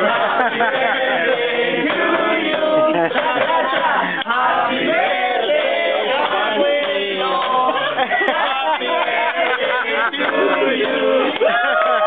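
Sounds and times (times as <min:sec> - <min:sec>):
group singing and chanting: 0:00.0 - 0:12.0
people talking: 0:02.6 - 0:04.4.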